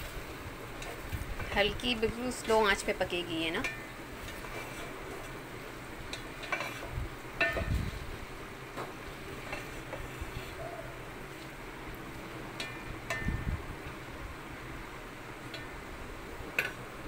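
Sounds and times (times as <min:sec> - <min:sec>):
vegetables sizzling: 0:00.0 - 0:17.0
spatula scraping metal pot: 0:04.3 - 0:05.0, 0:06.4 - 0:06.9.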